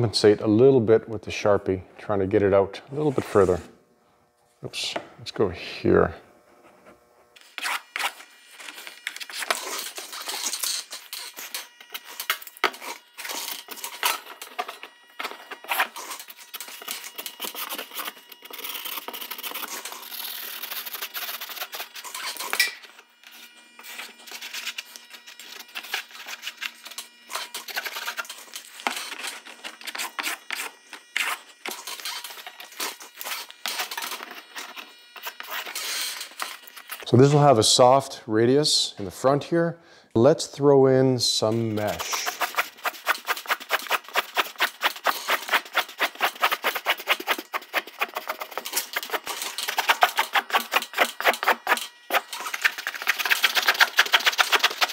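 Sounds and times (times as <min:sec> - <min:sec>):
marker scratching on paper: 0:41.9 - 0:54.9.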